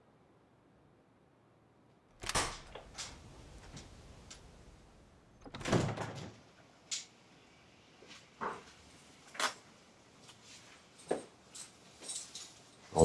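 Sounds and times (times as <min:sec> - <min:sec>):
door latch clicks: 0:02.2 - 0:02.9.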